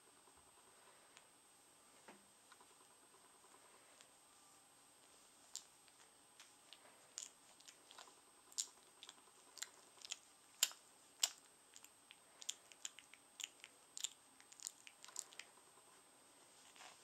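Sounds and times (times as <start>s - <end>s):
puppy mouth clicks and smacks: 5.5s - 15.6s.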